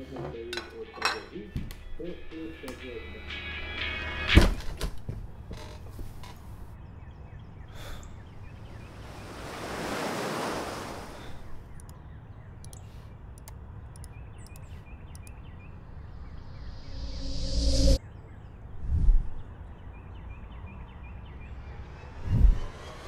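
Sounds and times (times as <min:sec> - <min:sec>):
rising riser sweep: 0:16.3 - 0:18.0, 0:21.5 - 0:23.0
whoosh: 0:16.6 - 0:18.0.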